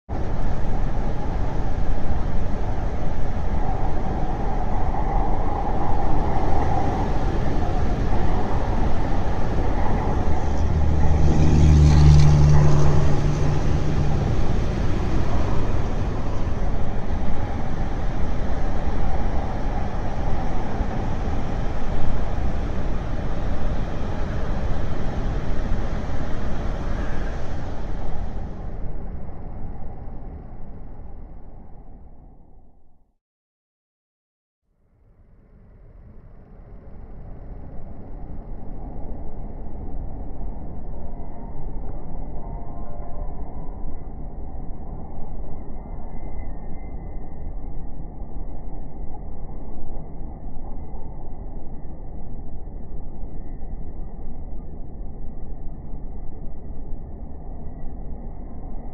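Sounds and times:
road traffic roar: 0.1 - 29.0
heavy vehicle engine droning: 6.2 - 31.3.

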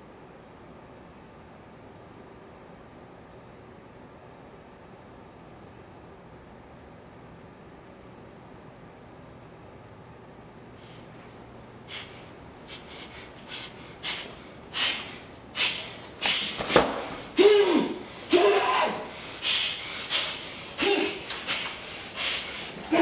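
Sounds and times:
man breathing hard through nose: 10.8 - 23.0.

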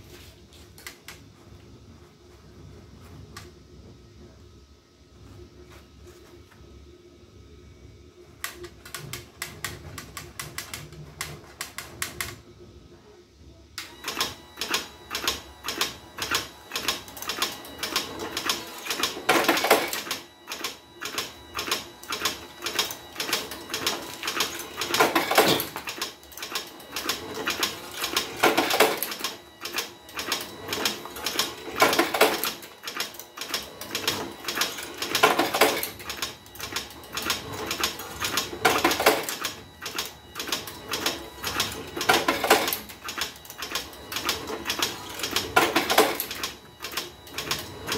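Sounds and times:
machine mechanism clicking rapidly: 13.8 - 47.9.

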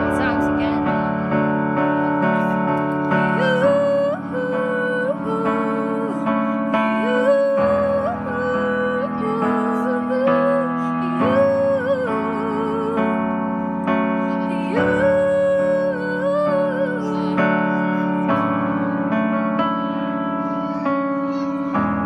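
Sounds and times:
digital piano chords: 0.0 - 22.0
girl singing wordless note: 2.0 - 19.0.

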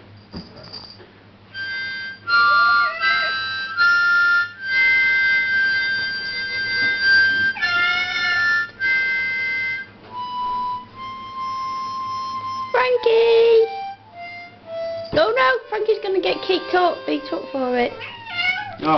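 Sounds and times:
harmonica chords: 1.5 - 18.9
cat yowling: 2.3 - 3.7, 7.5 - 8.7, 17.4 - 18.9.

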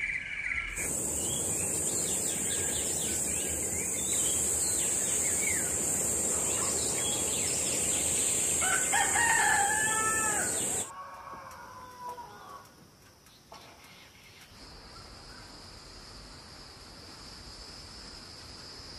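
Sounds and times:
insect drone: 0.0 - 10.9, 14.6 - 18.9
rooster crowing: 8.5 - 12.7.

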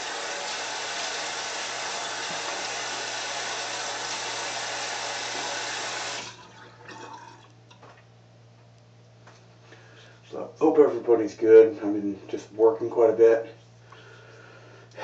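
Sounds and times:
tap water running: 0.0 - 7.9.

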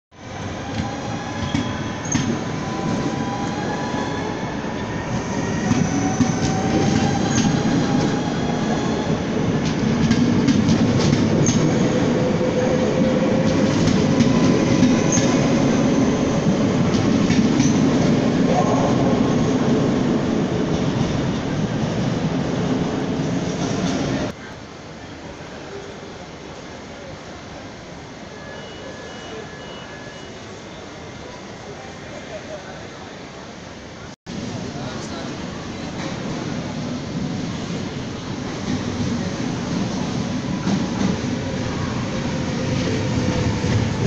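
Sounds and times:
train wheels rumbling on rails: 0.2 - 24.4, 34.3 - 44.0.

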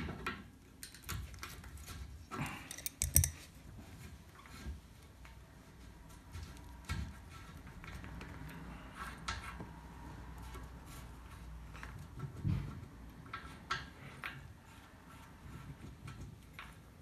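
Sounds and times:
light metallic clicks and taps: 2.7 - 3.5.

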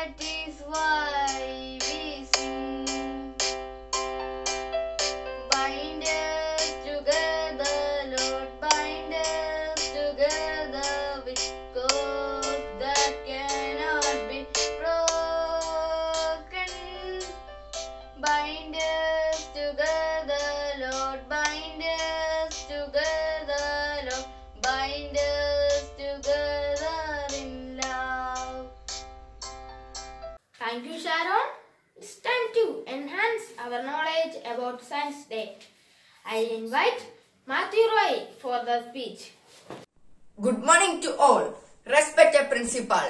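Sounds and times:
boy singing: 0.0 - 3.5, 5.5 - 17.4, 18.2 - 28.8
plucked instrument notes: 0.8 - 17.5.

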